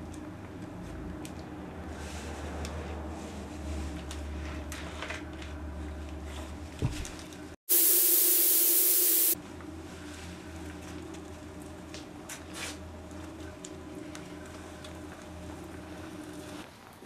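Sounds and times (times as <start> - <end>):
loud hiss of escaping gas: 7.7 - 9.4.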